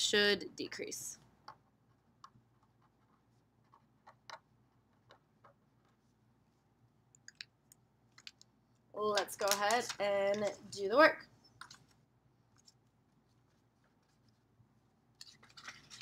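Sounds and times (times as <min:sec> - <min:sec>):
pen clicks: 0:09.1 - 0:10.5.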